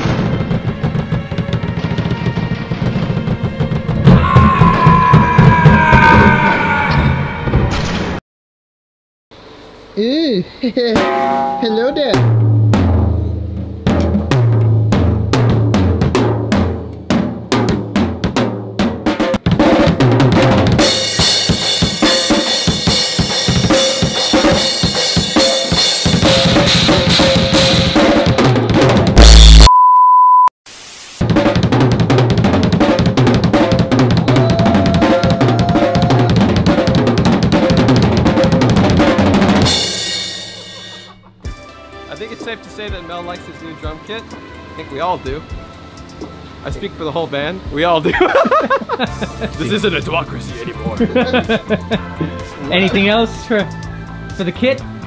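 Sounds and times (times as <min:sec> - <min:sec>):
drum kit played hard: 0:10.8 - 0:29.7, 0:31.2 - 0:43.4, 0:47.7 - 0:53.2
crash and ride cymbals: 0:19.6 - 0:28.5, 0:32.6 - 0:41.2
short steady beep: 0:29.3 - 0:30.5.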